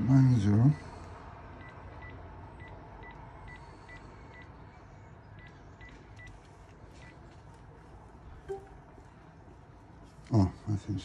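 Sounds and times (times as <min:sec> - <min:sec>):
faint phone beeps: 0:08.5 - 0:08.8.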